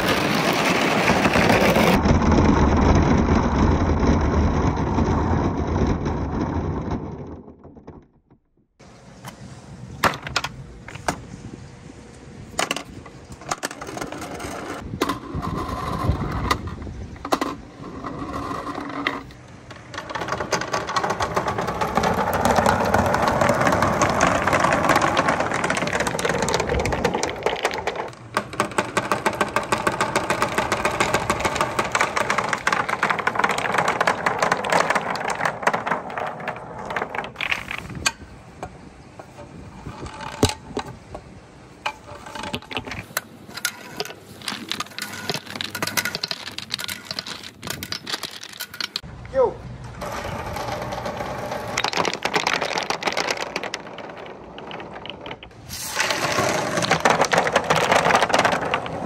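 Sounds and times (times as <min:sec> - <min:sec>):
wooden balls rolling down gutter: 0:00.0 - 0:11.2, 0:12.5 - 0:59.0
balls clicking in hands: 0:13.5 - 0:38.8, 0:41.8 - 0:49.4, 0:50.0 - 0:59.0.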